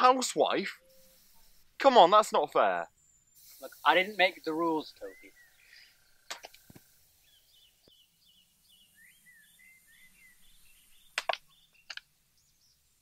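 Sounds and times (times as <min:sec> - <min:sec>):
small birds chirping: 0:00.4 - 0:13.0
sharp clicks: 0:06.3 - 0:06.9, 0:11.2 - 0:12.1.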